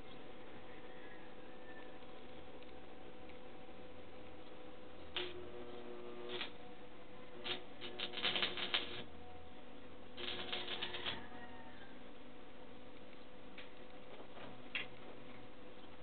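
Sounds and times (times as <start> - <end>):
low steady hum: 0.0 - 16.0
welding arc crackling: 5.1 - 6.6, 7.2 - 9.1, 10.1 - 11.4.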